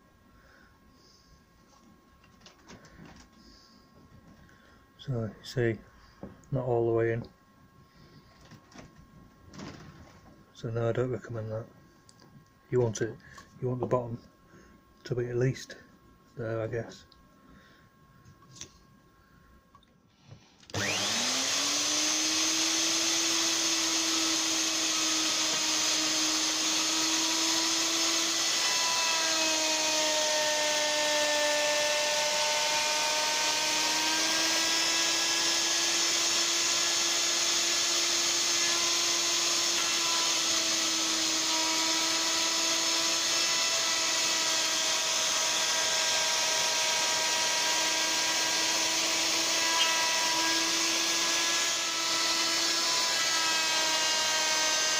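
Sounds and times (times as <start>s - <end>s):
electric router whining: 20.6s - 54.9s.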